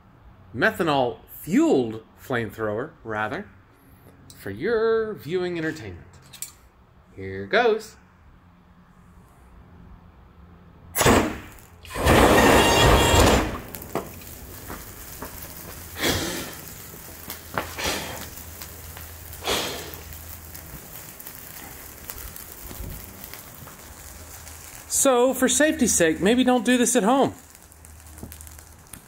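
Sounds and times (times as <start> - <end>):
burning grass crackling: 11.0 - 29.0
flamethrower whoosh of flame: 11.0 - 29.0
short puffs: 15.7 - 20.2.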